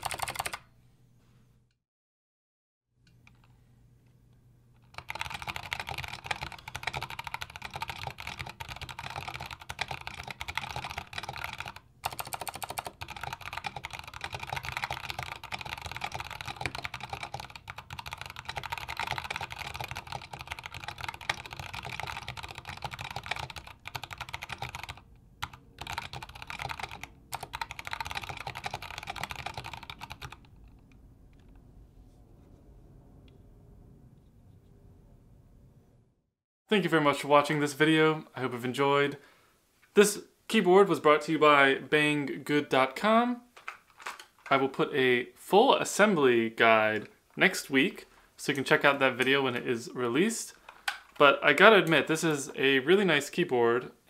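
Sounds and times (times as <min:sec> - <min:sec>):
fast typing on mechanical keyboard: 0:00.0 - 0:00.6, 0:04.8 - 0:30.9.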